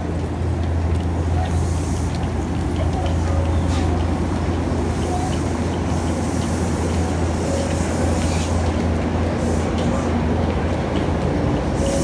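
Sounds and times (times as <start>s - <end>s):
train rumble and hiss: 0.0s - 12.0s.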